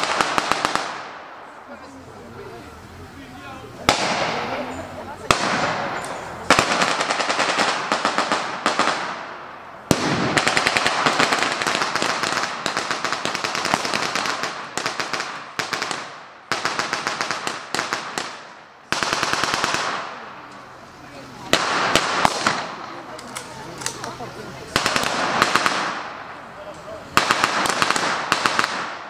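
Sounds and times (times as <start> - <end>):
automatic gunfire with echo: 0.0 - 1.3, 3.9 - 4.7, 5.3 - 20.2, 21.5 - 22.7, 24.8 - 26.2, 27.2 - 29.0.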